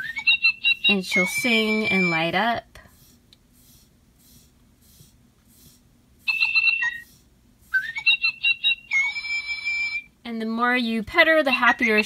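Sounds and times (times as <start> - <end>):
electronic toy bird chirps: 0.0 - 2.2, 6.3 - 7.1, 7.8 - 10.1, 11.5 - 12.0
rising electronic whistle: 7.8 - 9.1.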